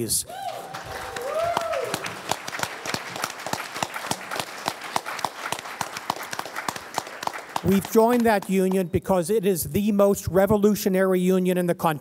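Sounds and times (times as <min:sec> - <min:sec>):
audience applauding: 0:00.3 - 0:09.0.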